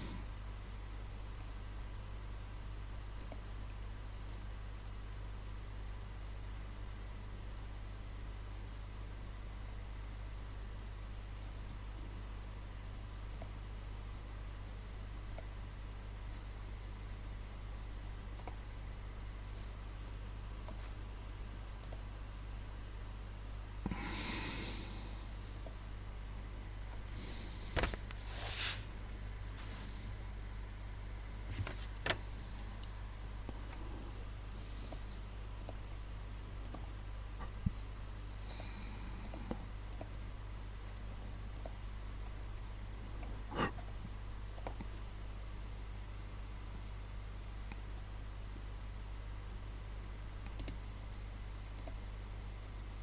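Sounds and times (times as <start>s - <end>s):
steady low hum: 0.0s - 53.0s
faint clicks: 3.2s - 3.4s, 13.3s - 13.6s, 15.3s - 15.5s, 18.4s - 18.6s, 21.8s - 22.0s, 25.5s - 25.8s, 34.8s - 35.8s, 36.6s - 37.8s, 38.4s - 40.2s, 41.5s - 42.4s, 44.5s - 44.9s, 50.4s - 50.9s, 51.7s - 52.0s
soft noisy puff: 27.3s - 28.9s
soft rustling: 27.6s - 28.9s, 31.5s - 32.9s
short hiss: 27.7s - 28.9s.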